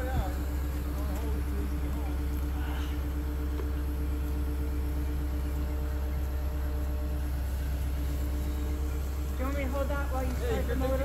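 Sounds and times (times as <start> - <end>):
diesel engine droning: 0.0 - 11.0
steady hum: 0.0 - 11.0.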